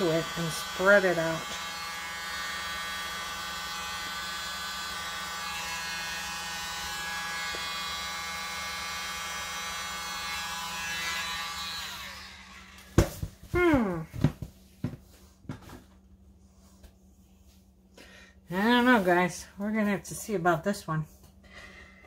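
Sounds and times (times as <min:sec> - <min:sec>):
electric blower buzzing whine: 0:00.0 - 0:14.4.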